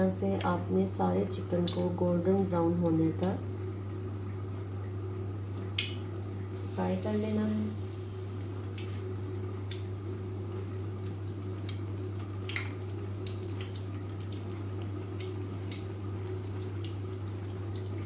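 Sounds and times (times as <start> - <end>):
chicken deep-frying sizzle: 3.0 - 18.0.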